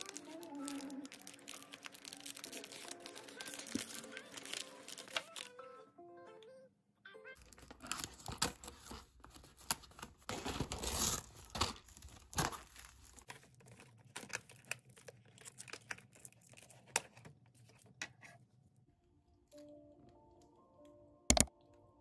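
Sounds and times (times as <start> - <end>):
plastic wrap crinkling: 0.0 - 5.6, 7.4 - 17.7.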